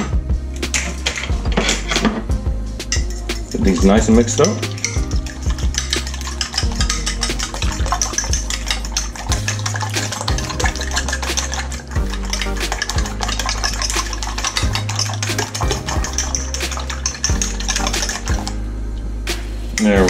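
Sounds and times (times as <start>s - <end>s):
fork whisking eggs in glass dish: 2.9s - 18.6s.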